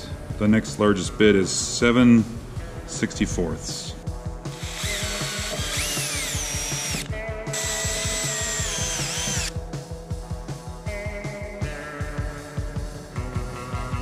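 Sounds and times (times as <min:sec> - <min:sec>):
background music with beat: 0:00.0 - 0:14.0
drill whining into sheet metal: 0:04.5 - 0:09.6.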